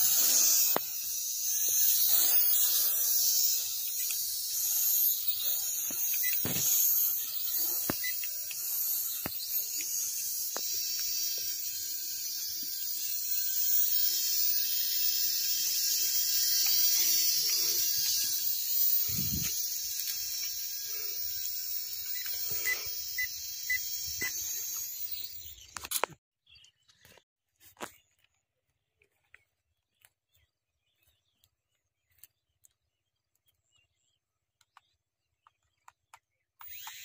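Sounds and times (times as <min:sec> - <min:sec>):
toy drone propellers whining: 0:00.0 - 0:26.2, 0:35.9 - 0:37.0.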